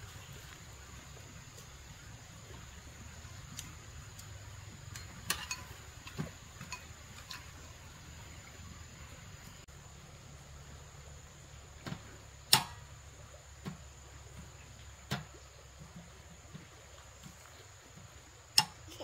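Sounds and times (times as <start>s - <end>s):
steady low hum: 0.0s - 19.0s
tableware clinking: 5.1s - 7.5s.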